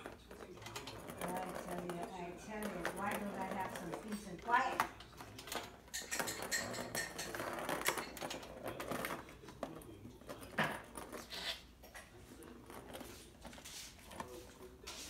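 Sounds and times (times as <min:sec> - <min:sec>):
plastic ring knocking and rattling: 0:00.0 - 0:11.3.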